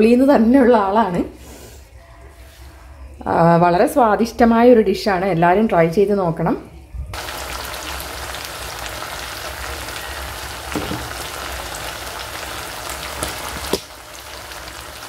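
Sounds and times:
chicken sizzling in a pan: 0:07.2 - 0:15.0.

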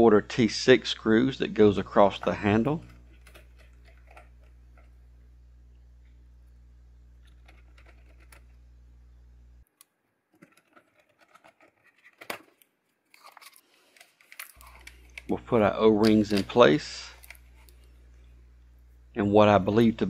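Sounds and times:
steady low hum: 0:00.0 - 0:09.7, 0:14.4 - 0:20.0
screwdriver clicks and scratches: 0:09.8 - 0:15.3.

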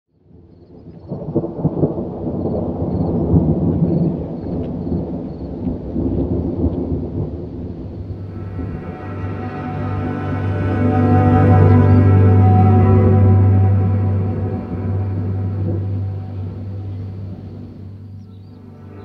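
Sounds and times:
thunder rumbling: 0:00.4 - 0:19.0.

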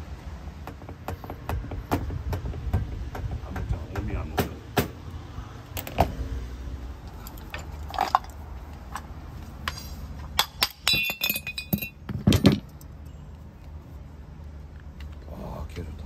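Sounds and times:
metal parts clinking: 0:07.1 - 0:09.1, 0:09.7 - 0:13.1.

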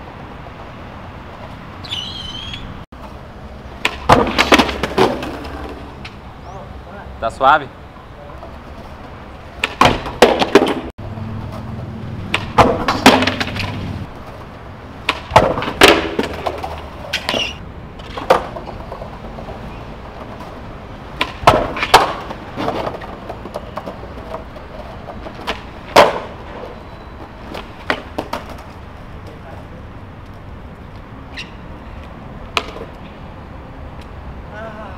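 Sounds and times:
skateboard clacking on concrete: 0:03.8 - 0:06.2, 0:08.2 - 0:10.9, 0:12.3 - 0:29.4, 0:32.0 - 0:33.1.

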